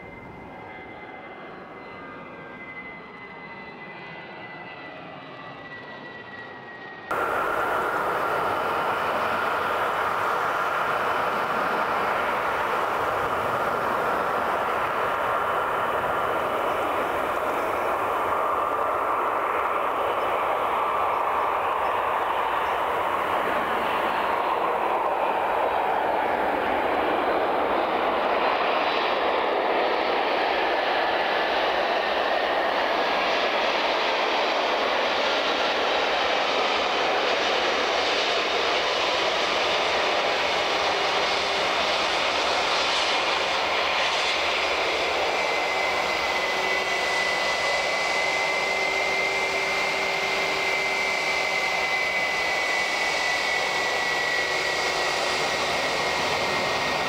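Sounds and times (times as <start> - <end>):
jet engines running: 0.0 - 57.0
high whine: 7.1 - 28.7, 44.4 - 57.0.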